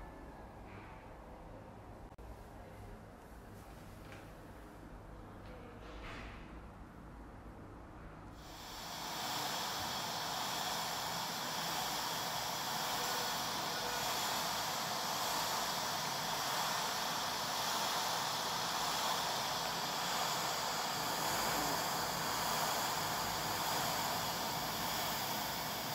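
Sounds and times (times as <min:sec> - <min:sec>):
steady hiss of rushing air: 0:08.4 - 0:25.9.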